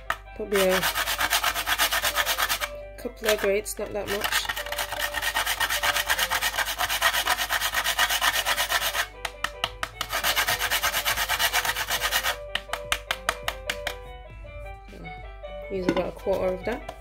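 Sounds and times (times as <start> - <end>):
nutmeg rasping on metal grater: 0.5 - 9.1, 10.0 - 12.4.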